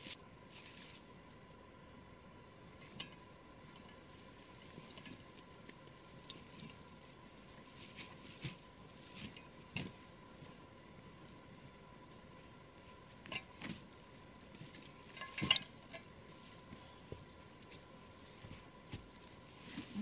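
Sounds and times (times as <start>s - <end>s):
gear rustling and handling: 2.8s - 10.6s, 12.4s - 20.0s.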